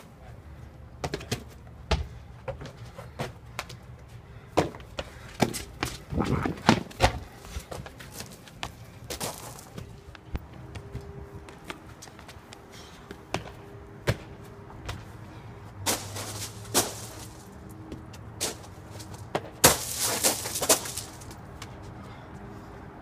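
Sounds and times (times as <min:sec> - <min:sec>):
sneakers scuffing on concrete: 0:04.6 - 0:15.1, 0:15.9 - 0:22.0.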